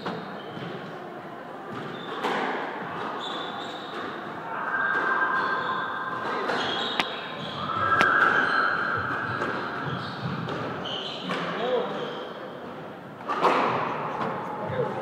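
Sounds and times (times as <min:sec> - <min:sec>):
squash ball smacking rackets and walls: 0:01.7 - 0:04.3, 0:09.3 - 0:11.6
shoes squeaking on wooden floor: 0:05.3 - 0:12.6.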